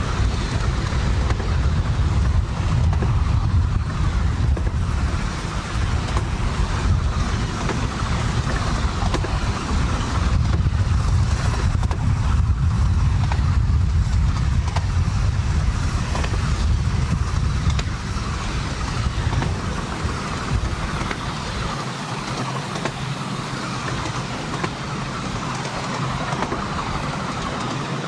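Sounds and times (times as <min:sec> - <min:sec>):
wind on microphone: 0:00.0 - 0:21.9
miniature steam locomotive running: 0:00.0 - 0:28.0.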